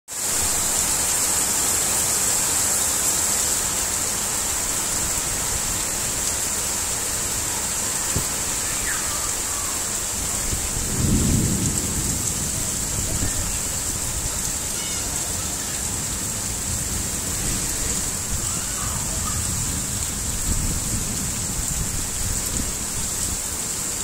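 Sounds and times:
heavy rain pouring: 0.1 - 24.0
gusty wind rumbling: 8.0 - 14.7, 15.5 - 23.1.

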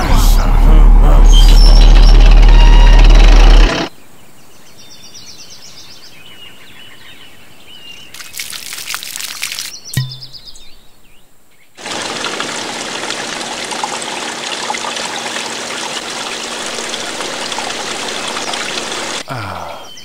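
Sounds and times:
fountain water splashing: 8.2 - 9.9, 11.8 - 19.3.

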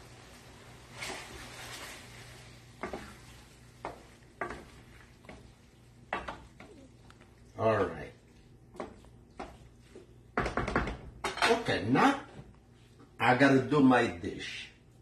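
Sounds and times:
stirring pasta in a skillet: 0.0 - 11.4.

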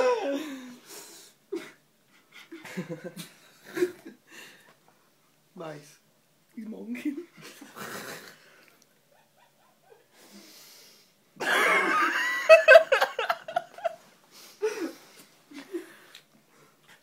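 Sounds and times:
person laughing hard: 11.4 - 14.0.

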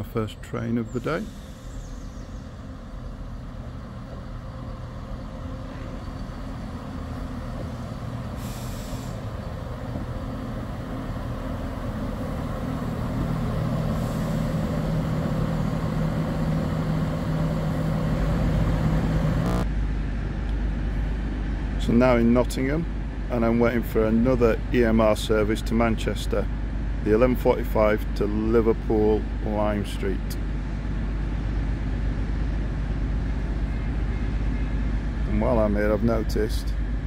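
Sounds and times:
train engine drone: 0.0 - 37.0
air hisses: 8.3 - 9.3.

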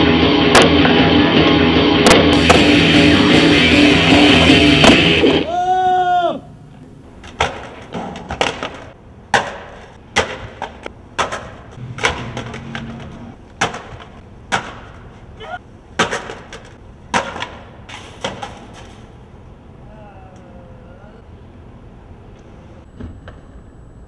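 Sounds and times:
skateboard clacking on concrete: 7.2 - 15.1, 16.0 - 19.0.

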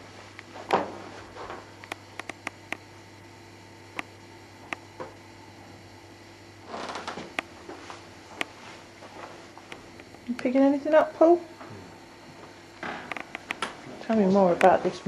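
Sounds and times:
low hum and hiss: 0.0 - 15.0
small clicks and ticks: 1.8 - 2.8.

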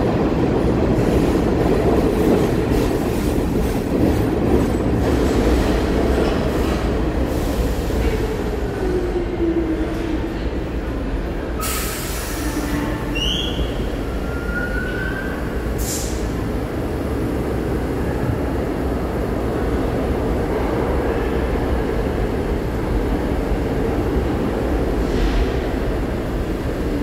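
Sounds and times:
subway train rumble: 0.0 - 27.0
train brakes squealing: 11.6 - 16.2.

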